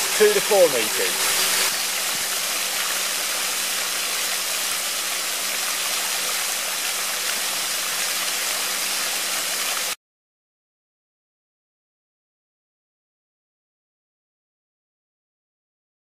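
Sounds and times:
fountain water splashing on pond: 0.0s - 10.0s.

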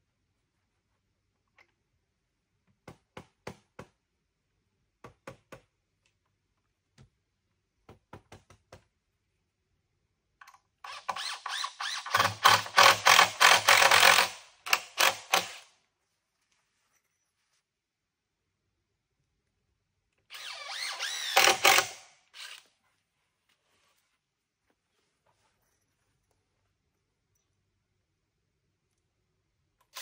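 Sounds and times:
power driver driving a screw: 10.8s - 15.7s, 20.3s - 22.7s.

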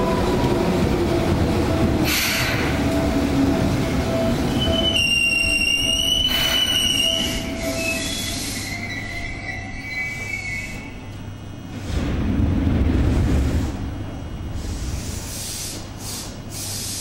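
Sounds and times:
train wheels rumbling on rails: 0.0s - 17.0s
train brakes squealing: 4.5s - 11.0s.

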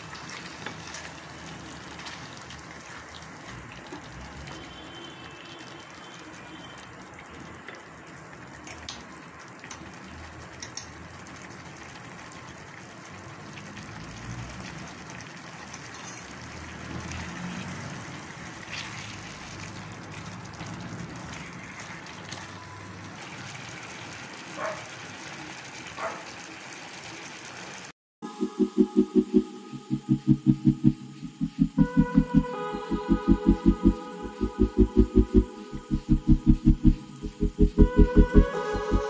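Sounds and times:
gravy bubbling and hissing: 9.3s - 15.7s.

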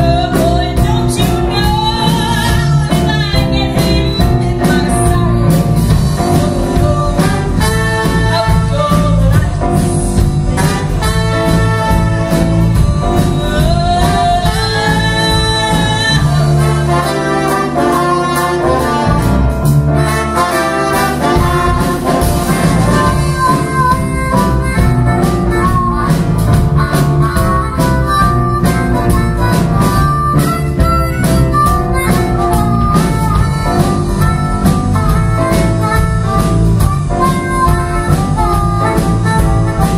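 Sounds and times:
drums: 0.0s - 39.9s
keyboards: 0.0s - 39.9s
trumpet: 6.2s - 9.5s, 10.2s - 39.9s
harmonica: 20.0s - 39.9s.

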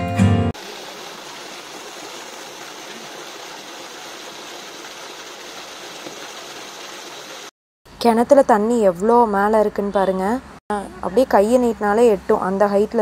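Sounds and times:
water gushing into well: 0.6s - 7.5s.

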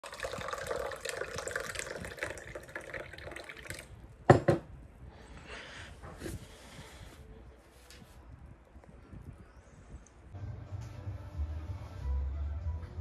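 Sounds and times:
liquid pouring into a glass: 0.0s - 4.0s.

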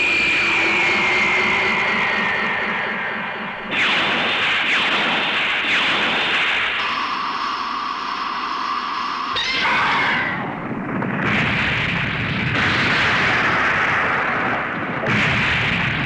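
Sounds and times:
steady electronic whine: 0.0s - 16.0s
explosion blast: 3.7s - 6.8s, 10.5s - 16.0s.

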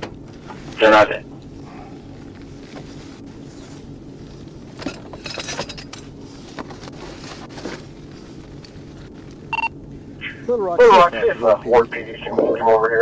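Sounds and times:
steady low hum: 0.0s - 13.0s
metallic clinks and rustles: 4.7s - 7.4s
short electronic beep: 9.5s - 9.7s.

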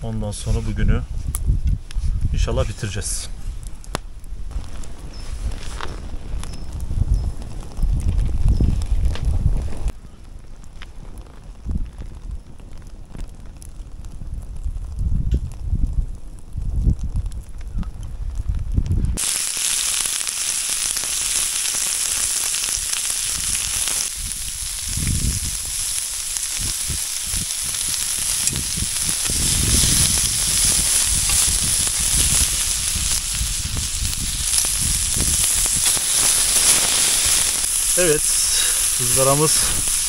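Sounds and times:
meat sizzling on a grill: 19.2s - 40.0s.

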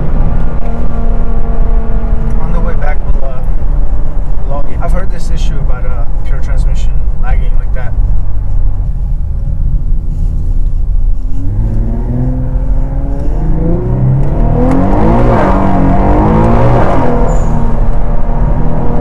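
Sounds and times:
car engine accelerating hard: 0.0s - 4.4s, 11.2s - 19.0s.

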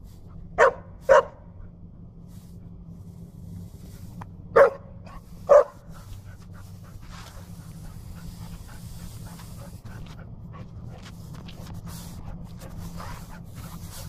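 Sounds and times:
puppy barking: 0.6s - 1.5s, 4.6s - 5.9s.

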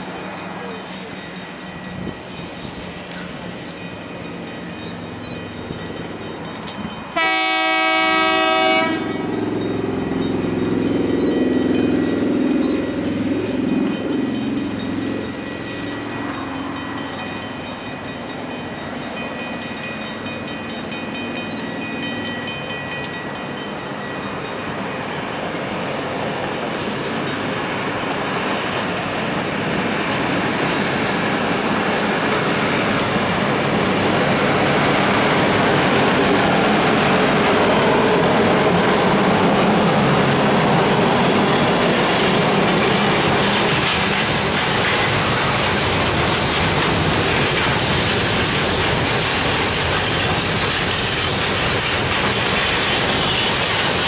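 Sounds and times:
train rumble and wheel noise: 0.0s - 54.0s
train horn blast: 7.2s - 9.4s.

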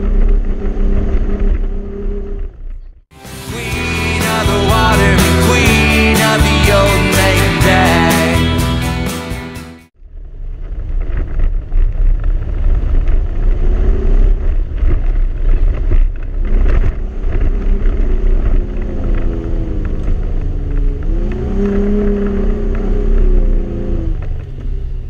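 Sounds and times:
truck engine rumbling: 0.0s - 25.0s.

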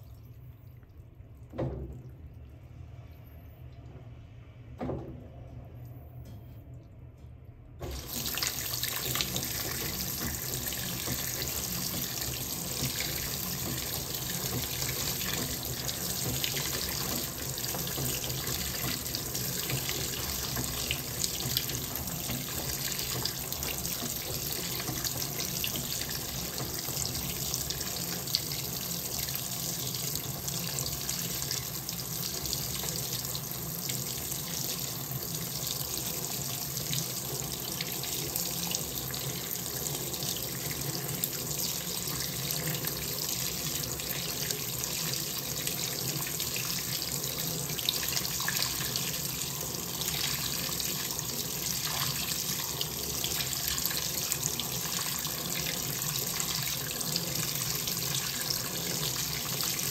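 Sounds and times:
washing machine filling with water: 0.0s - 5.8s, 6.6s - 59.9s
faint low hum: 0.0s - 7.9s.

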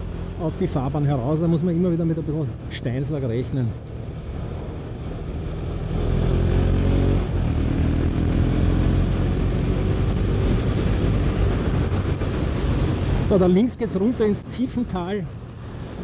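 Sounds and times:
wind noise: 4.0s - 13.4s
motorcycle engine accelerating: 4.2s - 13.3s.

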